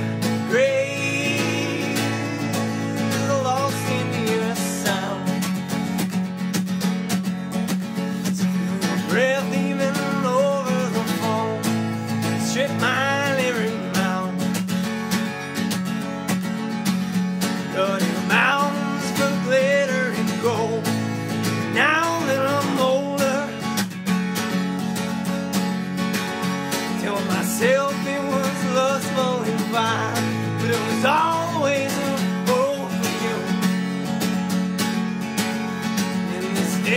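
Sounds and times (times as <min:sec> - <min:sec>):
acoustic guitar folk song: 0:00.0 - 0:36.9
person singing: 0:00.3 - 0:05.5, 0:08.2 - 0:11.7, 0:12.3 - 0:14.5, 0:17.7 - 0:21.0, 0:21.6 - 0:23.6, 0:26.9 - 0:33.8, 0:36.2 - 0:36.9.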